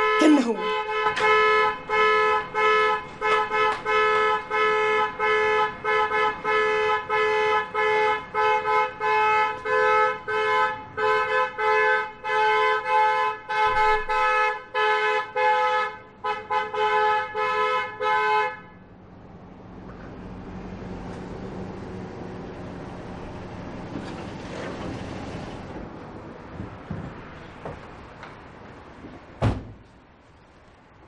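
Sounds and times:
two-tone car horn beeping: 0.0s - 18.9s.

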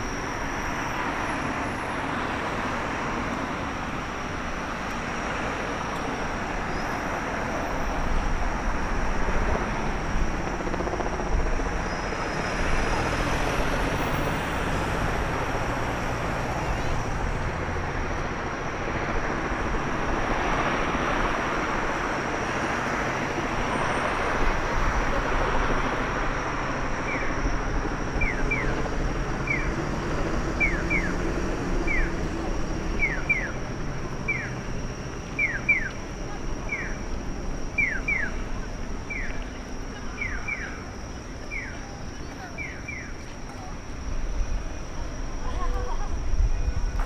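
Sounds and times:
street traffic roar: 0.0s - 47.0s
crossing signal bird-call chirps: 27.0s - 27.5s, 28.2s - 28.8s, 29.4s - 29.8s, 30.6s - 31.2s, 31.8s - 32.2s, 33.0s - 33.6s, 34.2s - 34.6s, 35.3s - 43.3s.

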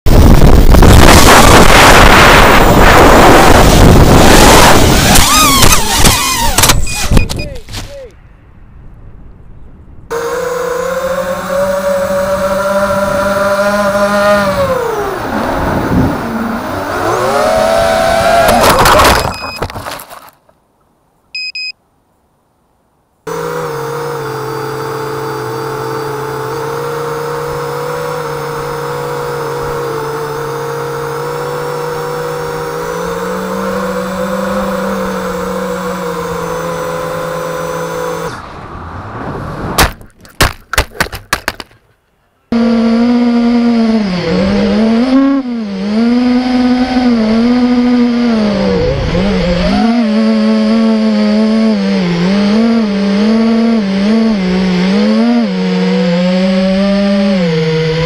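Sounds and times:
quadcopter motors whining: 0.2s - 7.5s, 10.1s - 18.7s, 23.3s - 38.4s, 42.5s - 58.0s
electronic beep: 6.7s - 7.6s, 19.1s - 19.7s, 21.4s - 21.8s.

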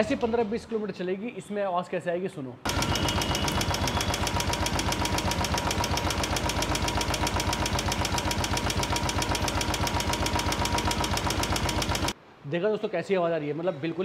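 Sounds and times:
motorcycle engine idling: 2.7s - 12.1s
rapid tappet ticking: 2.7s - 12.2s.

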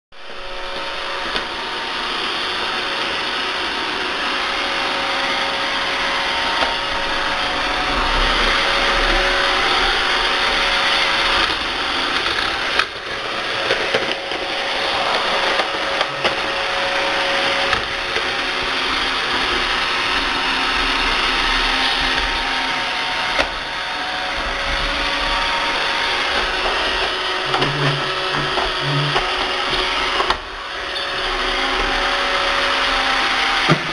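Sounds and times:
robot vacuum whirring: 0.2s - 33.9s.

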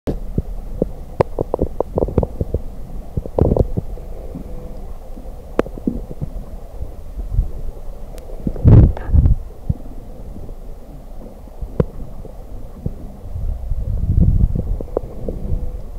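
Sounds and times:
underwater clicks and knocks: 0.1s - 4.9s, 5.5s - 6.5s, 11.2s - 13.1s
muffled underwater rumble: 0.1s - 15.9s.

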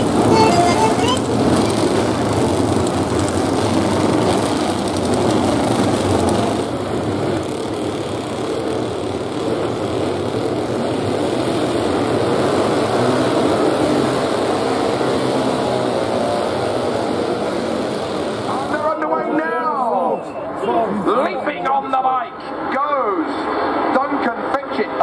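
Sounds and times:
motorcycle engines running: 0.0s - 19.1s.

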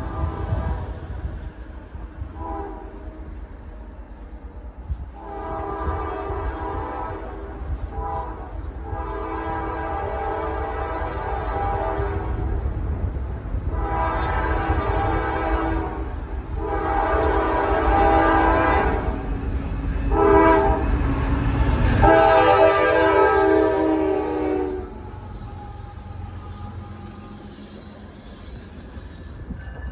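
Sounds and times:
low rumble of train: 0.0s - 29.9s
locomotive air horn blasts: 2.4s - 3.1s, 5.2s - 12.4s, 13.7s - 19.2s, 20.1s - 20.9s, 22.0s - 27.4s.

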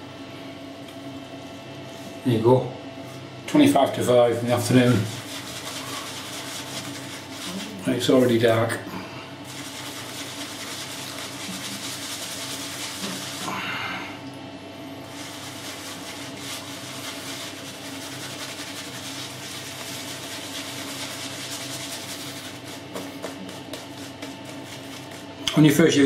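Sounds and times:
shaving brush scrubbing: 4.3s - 8.6s, 9.4s - 13.6s, 15.0s - 26.0s.

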